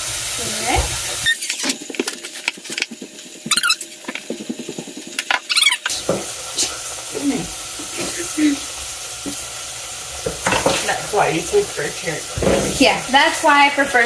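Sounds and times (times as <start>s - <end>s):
high squeaks: 1.2s - 1.8s, 3.5s - 4.0s, 5.4s - 6.0s.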